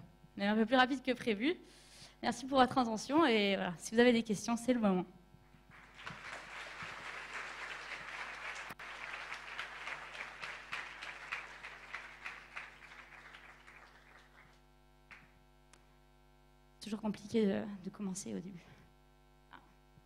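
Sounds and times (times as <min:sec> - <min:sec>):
audience applauding: 0:05.7 - 0:15.3.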